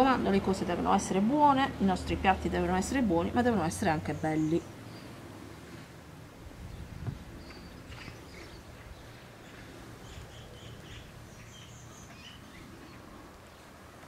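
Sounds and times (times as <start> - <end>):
low outdoor background noise: 0.0 - 14.0
small birds chirping: 3.6 - 5.9, 6.6 - 13.8.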